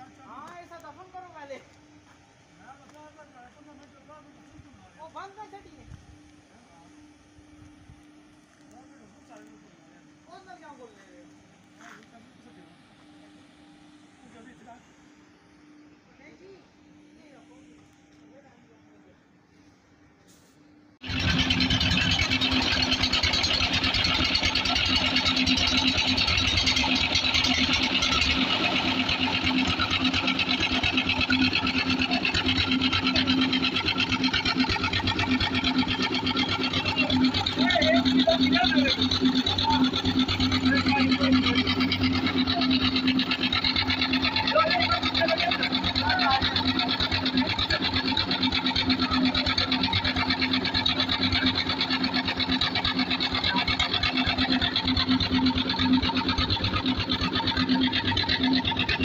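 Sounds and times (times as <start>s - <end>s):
concrete mixer mechanical clatter: 21.0s - 59.0s.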